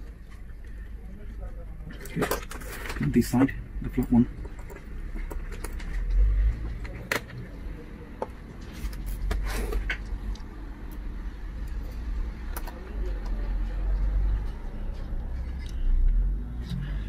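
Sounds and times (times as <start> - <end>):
scrape of metal and plastic: 2.0 - 3.2.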